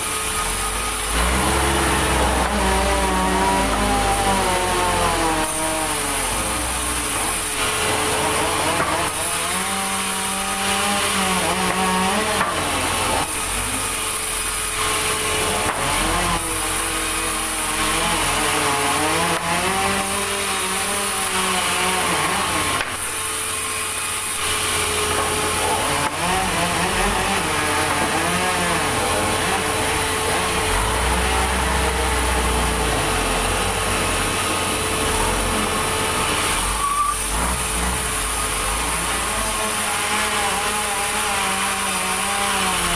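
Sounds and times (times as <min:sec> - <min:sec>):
band saw cutting timber: 0:00.0 - 0:42.9.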